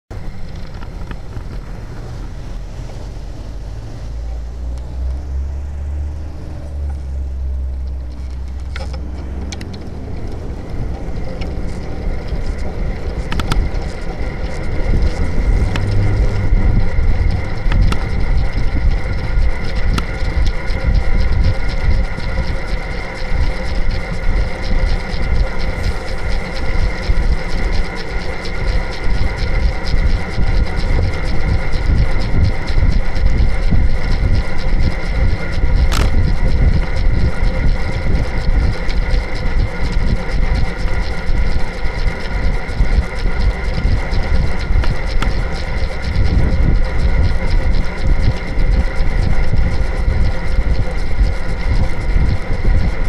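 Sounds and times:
road rumble: 0.1s - 29.7s
wind noise: 0.1s - 53.0s.

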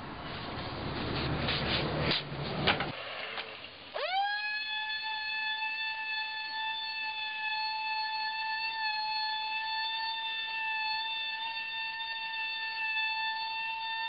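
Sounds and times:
electric sander motor whine: 4.0s - 14.0s.

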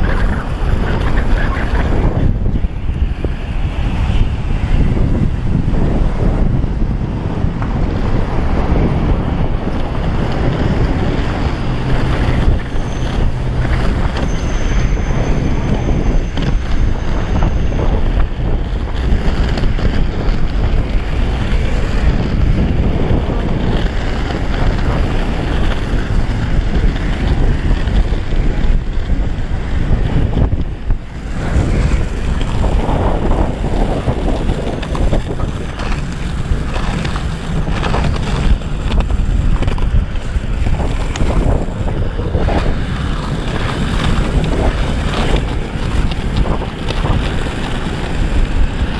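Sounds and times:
skateboard wheels rolling on asphalt: 0.0s - 48.9s
wind rushing over microphone: 0.0s - 48.9s.

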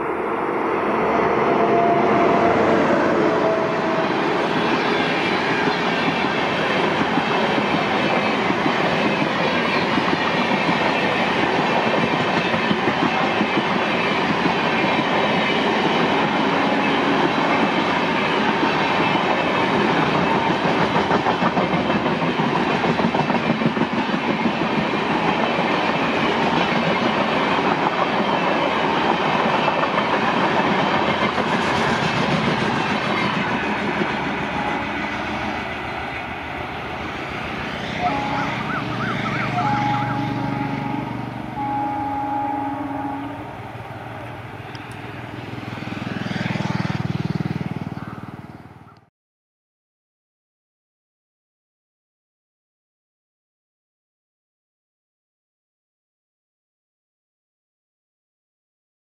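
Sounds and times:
train rolling rumble: 0.0s - 48.0s
wheels clacking on rails: 2.1s - 49.0s.

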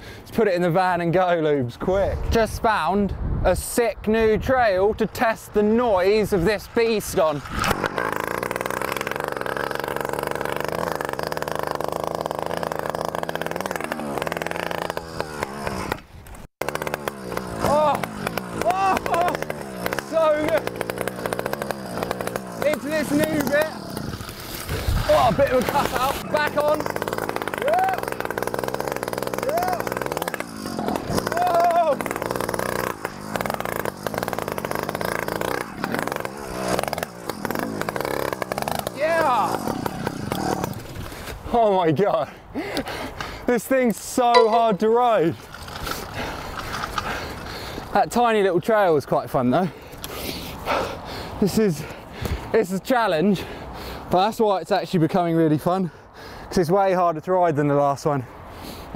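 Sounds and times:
small bicycle engine buzzing: 5.4s - 41.4s, 44.4s - 48.0s.

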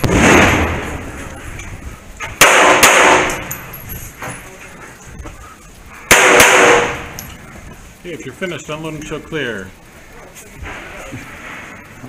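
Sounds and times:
pistol shots with metallic echo: 2.4s - 3.6s, 6.1s - 7.2s.

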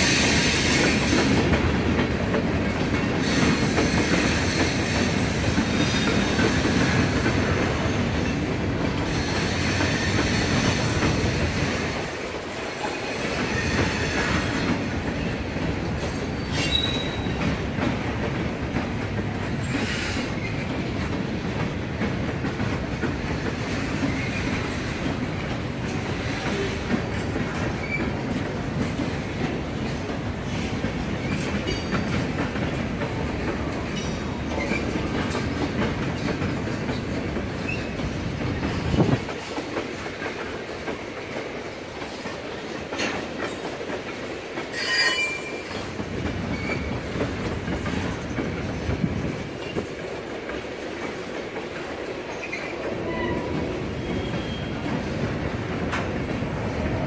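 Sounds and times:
rhythmic clickety-clack: 0.0s - 44.8s, 45.4s - 57.0s
train wheels rumbling on rail: 0.0s - 57.0s.

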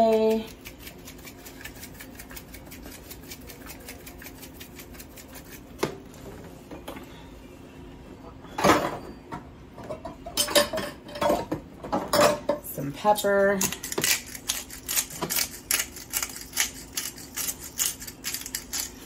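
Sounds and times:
kitchen containers clattering: 9.8s - 12.6s.

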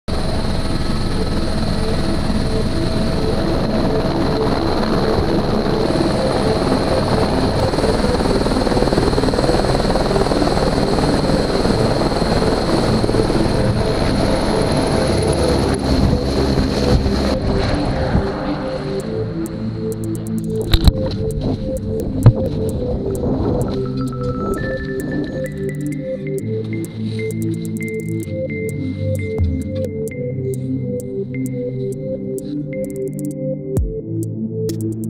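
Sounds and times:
helicopter idling: 0.1s - 34.0s
rotor downwash buffeting microphone: 11.6s - 19.8s.

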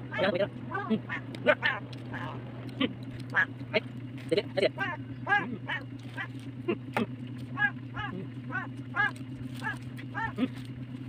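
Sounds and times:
short animal calls: 0.0s - 3.9s, 4.6s - 10.7s
steady low hum: 0.0s - 11.0s.

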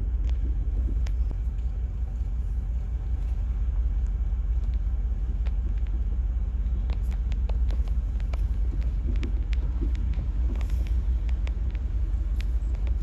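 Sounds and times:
car engine and tyres rumbling: 0.0s - 13.0s
faint ticks: 3.2s - 13.0s.

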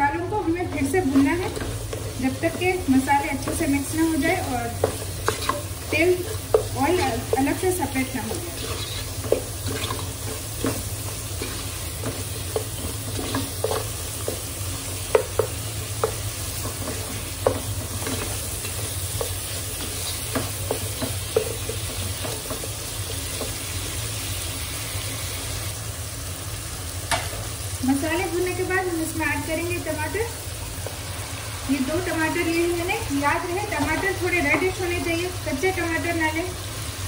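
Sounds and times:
meat sizzling in a pot: 0.0s - 37.0s
wooden spatula scraping a pot: 0.7s - 23.8s.

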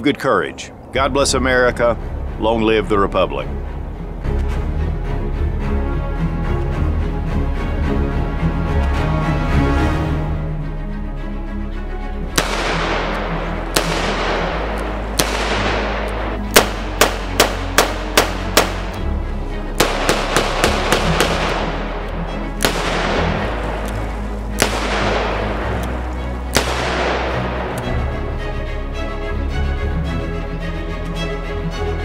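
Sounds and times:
background music: 0.0s - 32.0s
revolver gunshots: 12.4s - 19.0s, 19.8s - 27.9s.

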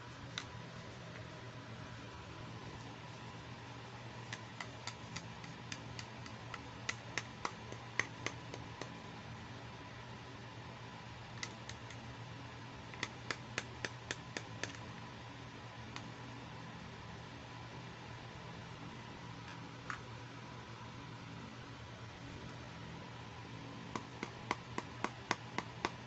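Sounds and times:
faint steady hum: 0.0s - 26.0s
plastic toy clicks and taps: 4.3s - 9.0s.

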